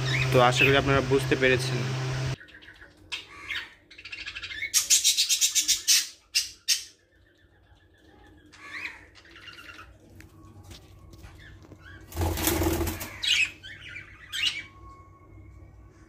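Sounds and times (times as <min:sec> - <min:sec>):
bird chick squawking: 0:02.4 - 0:07.0, 0:08.5 - 0:10.0, 0:11.9 - 0:14.7.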